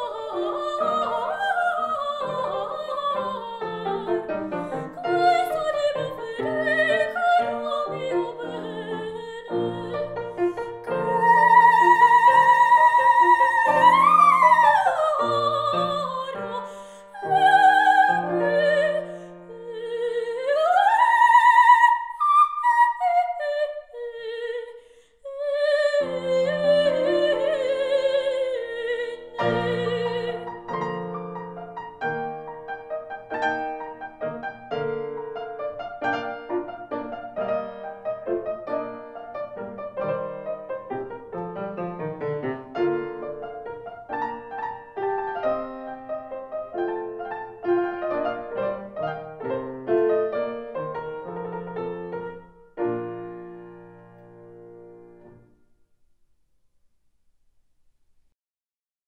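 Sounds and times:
grand piano playing: 0:00.0 - 0:22.8, 0:25.9 - 0:55.5
soprano singing with vibrato: 0:00.0 - 0:31.0.

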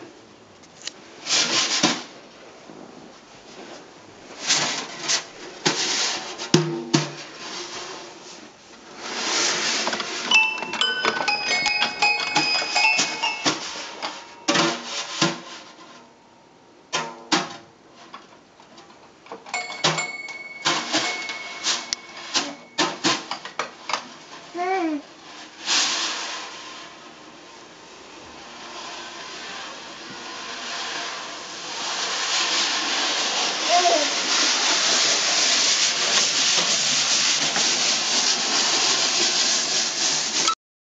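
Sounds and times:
brushes swishing on snare drum: 0:01.2 - 0:02.1, 0:03.5 - 0:10.2, 0:11.6 - 0:15.8, 0:28.4 - 0:40.5
snare drum strikes: 0:06.6 - 0:07.2
toy piano plinking: 0:10.3 - 0:14.6, 0:19.5 - 0:22.8.

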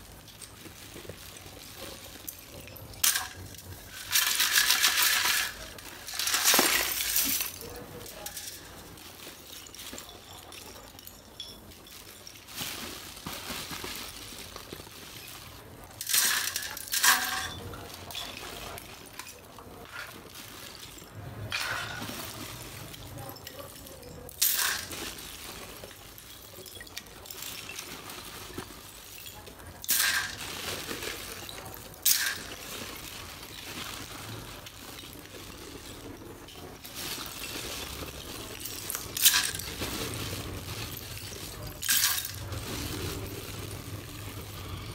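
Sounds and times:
clay pieces rustling and scraping: 0:00.0 - 0:44.9
clay shards clinking on metal sieve: 0:00.0 - 0:44.9.

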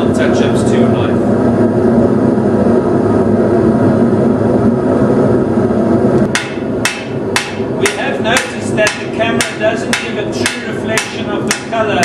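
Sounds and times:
gas forge burner roaring: 0:00.0 - 0:12.0
hammer striking steel on anvil: 0:06.3 - 0:11.8.

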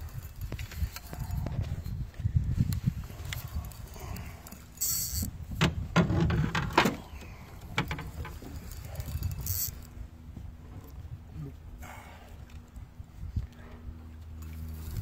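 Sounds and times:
fishing reel clicks and knocks: 0:00.0 - 0:01.6, 0:02.7 - 0:05.4, 0:07.6 - 0:09.9, 0:14.4 - 0:15.0
steady low rumble: 0:00.0 - 0:15.0.

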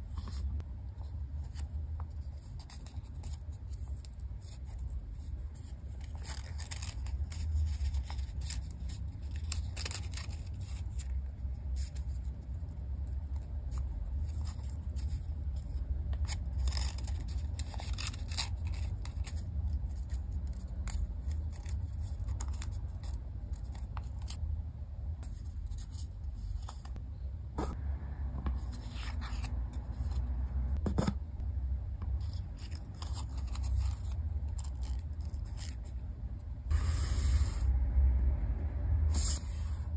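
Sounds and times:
steady low hum: 0:00.0 - 0:39.9
paper being folded and creased: 0:01.4 - 0:12.4, 0:13.0 - 0:24.4, 0:32.2 - 0:36.0.

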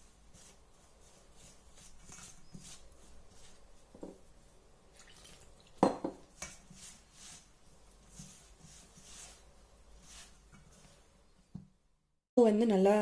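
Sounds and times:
hand rustling flour in bowl: 0:00.0 - 0:05.6, 0:06.2 - 0:11.3
water pouring: 0:04.9 - 0:05.8.

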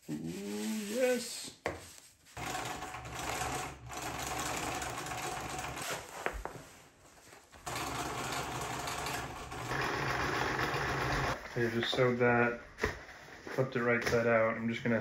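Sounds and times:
sewing machine stitching: 0:02.4 - 0:06.0, 0:07.6 - 0:11.4.

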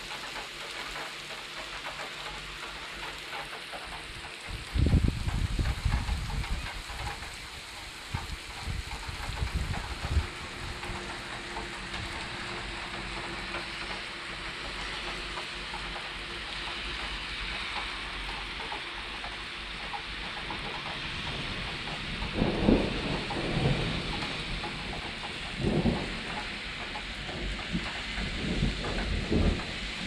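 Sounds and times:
heavy rain on pavement: 0:00.0 - 0:30.0
thunder rumbles: 0:04.4 - 0:14.1, 0:20.6 - 0:30.0.

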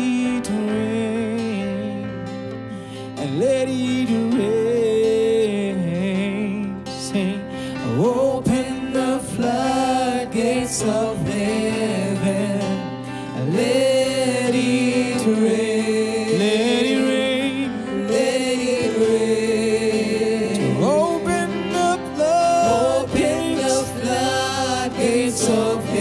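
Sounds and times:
acoustic guitar: 0:00.0 - 0:26.0
electronic keyboard: 0:00.0 - 0:26.0
singers' voices: 0:07.1 - 0:26.0.

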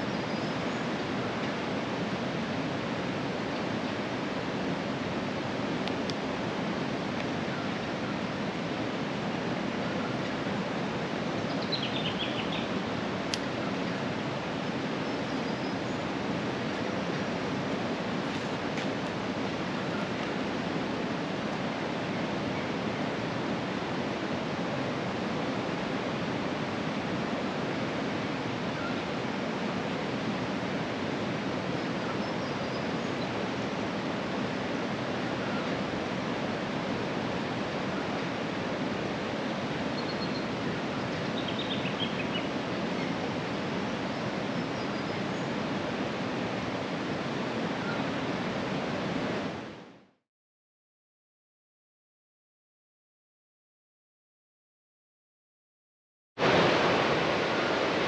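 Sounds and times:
river water rushing: 0:00.0 - 0:50.0, 0:56.4 - 0:58.0.

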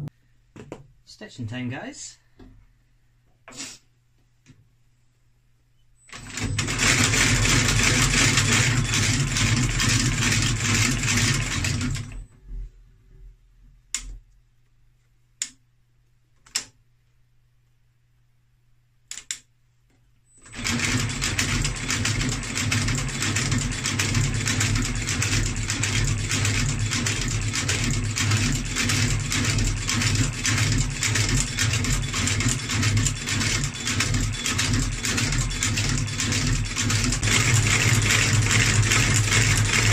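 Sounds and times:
stitching machine running: 0:06.1 - 0:12.2, 0:20.4 - 0:39.9.

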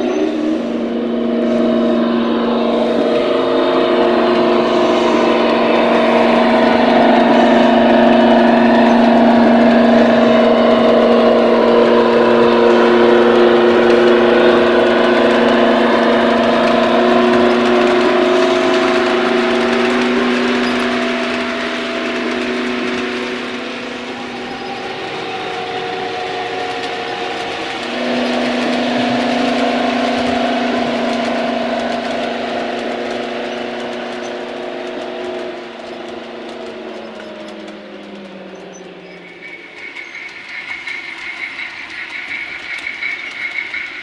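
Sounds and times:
diesel engine drone: 0:00.0 - 0:44.0.

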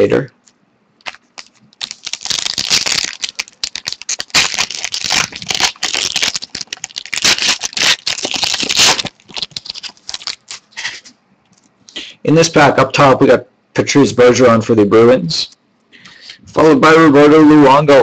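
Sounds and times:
foil wrapper crinkling: 0:01.0 - 0:11.1.

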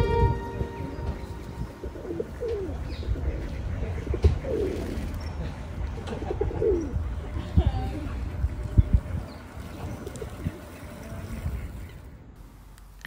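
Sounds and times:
pigeons cooing: 0:01.2 - 0:07.2.

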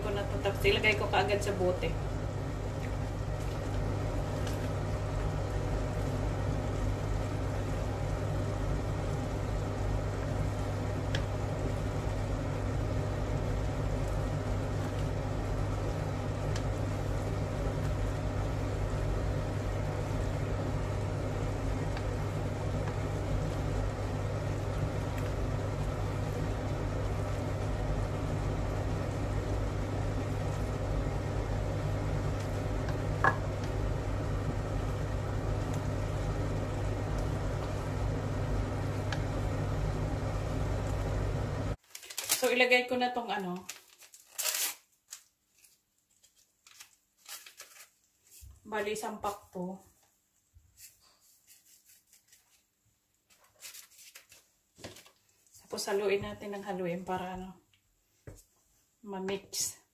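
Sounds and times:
electrical appliance hum: 0:00.0 - 0:59.9
jam simmering in a pot: 0:00.2 - 0:41.8
wooden spatula stirring: 0:02.4 - 0:06.3, 0:20.0 - 0:41.8.

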